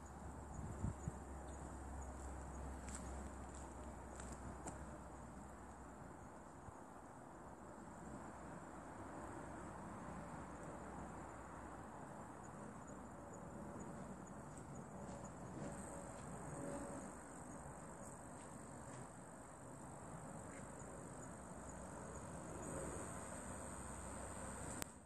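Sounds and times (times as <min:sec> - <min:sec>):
insects trilling: 0:12.1 - 0:25.0.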